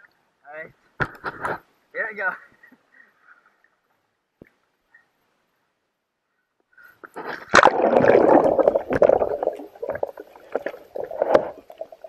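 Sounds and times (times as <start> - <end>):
water churning underwater: 7.1 - 12.0
sharp splashes: 7.4 - 9.8.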